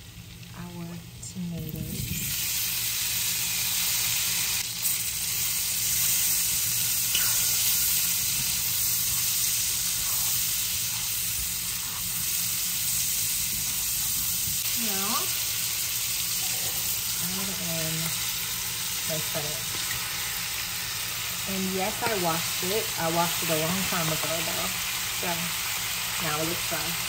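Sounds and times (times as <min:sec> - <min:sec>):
tomatoes sizzling in a pan: 0:00.0 - 0:27.0
spatula stirring in a pan: 0:05.8 - 0:15.1.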